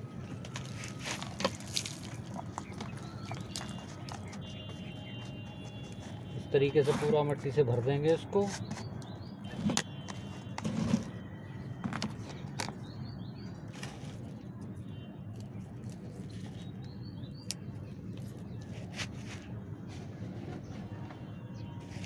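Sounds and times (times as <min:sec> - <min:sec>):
hands and tool scraping soil: 0:00.6 - 0:07.4, 0:10.6 - 0:11.2, 0:18.2 - 0:20.9.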